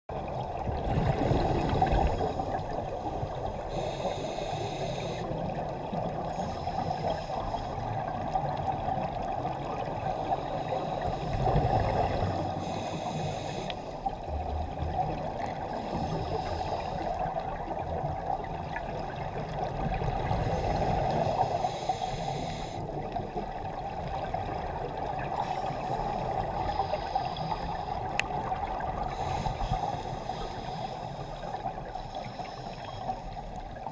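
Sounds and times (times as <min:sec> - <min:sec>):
gurgling exhaled bubbles: 0:00.1 - 0:03.6, 0:11.1 - 0:12.6
muffled underwater drone: 0:00.1 - 0:33.9
regulator hiss: 0:03.7 - 0:05.3, 0:12.6 - 0:14.0, 0:21.5 - 0:22.9.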